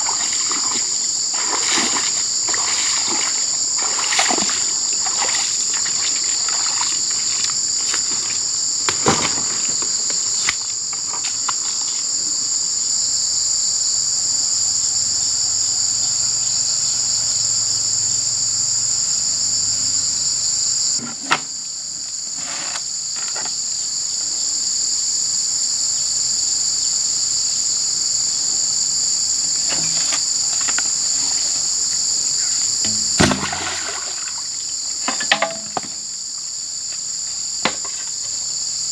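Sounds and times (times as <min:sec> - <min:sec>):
water splash: 0:00.0 - 0:07.0, 0:32.9 - 0:34.5
high-pitched insect chorus: 0:00.0 - 0:38.9.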